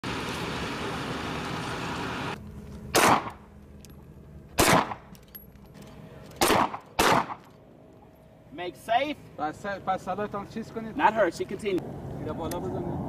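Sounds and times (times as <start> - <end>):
steady rushing background noise: 0.1 - 13.0
pistol shots with echo: 2.9 - 3.4, 4.6 - 5.1, 6.4 - 7.4.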